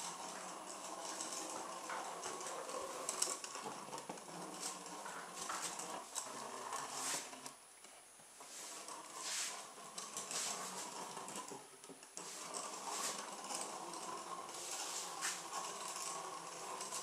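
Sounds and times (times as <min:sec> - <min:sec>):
small electric motor running: 0:12.2 - 0:17.0.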